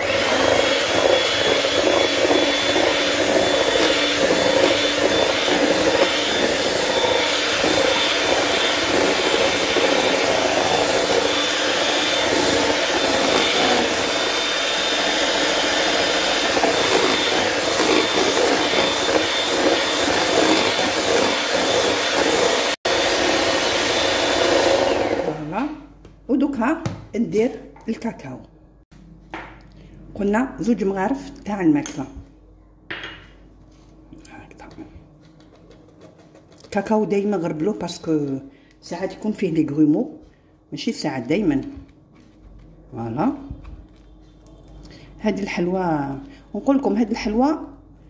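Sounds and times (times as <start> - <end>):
electric hand mixer whisking: 0.0 - 25.8.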